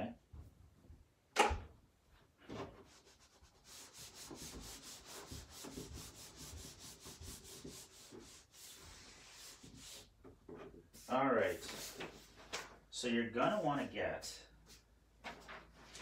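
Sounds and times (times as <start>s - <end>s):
eraser rubbing on whiteboard: 2.8s - 10.2s.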